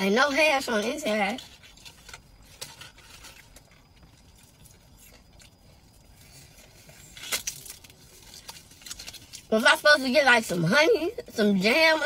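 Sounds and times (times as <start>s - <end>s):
chewing crispy food: 0.0s - 12.0s
sharp crackle: 0.6s - 10.1s.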